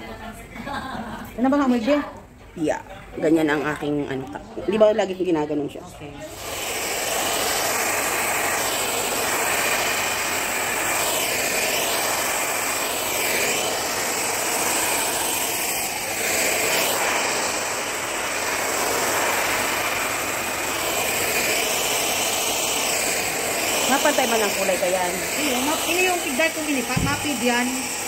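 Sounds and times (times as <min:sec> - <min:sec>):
hair dryer blowing: 0:06.2 - 0:28.0.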